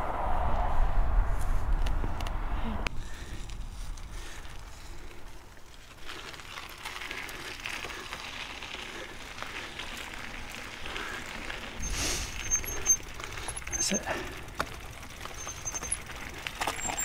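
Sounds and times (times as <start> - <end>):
bike tyres crunching on gravel: 3.0 - 17.0
freewheel ticking: 6.4 - 17.0.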